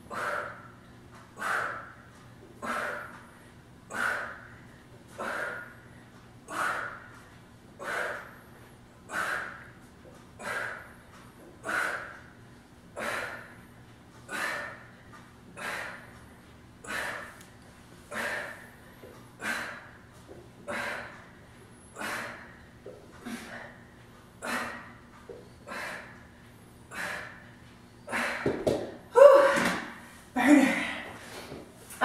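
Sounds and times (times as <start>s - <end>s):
woman exhaling forcefully: 29.2s - 30.0s.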